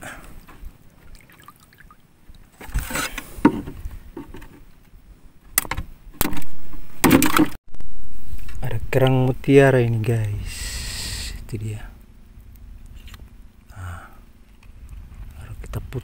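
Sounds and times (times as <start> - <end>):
water splashing and dripping: 1.0 - 2.4.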